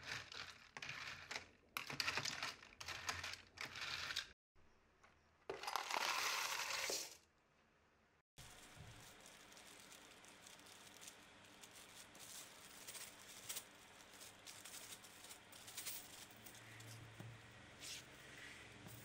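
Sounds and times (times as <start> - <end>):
plastic bag crinkling: 8.4 - 16.5.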